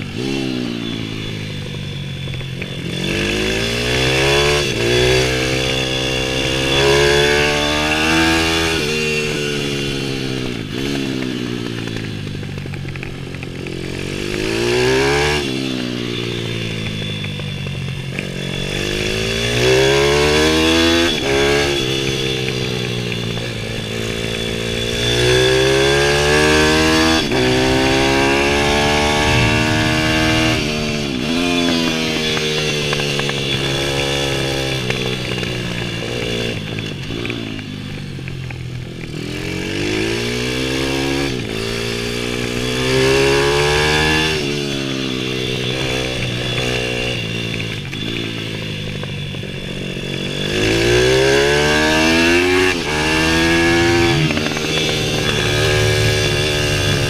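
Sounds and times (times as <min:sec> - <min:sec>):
motorbike engine revving: 0:00.0 - 0:57.0.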